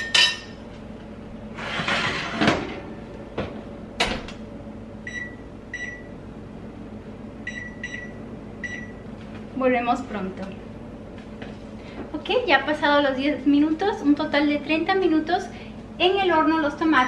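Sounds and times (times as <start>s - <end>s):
oven rack scraping: 1.5s - 3.2s
oven door shutting: 1.5s - 4.5s.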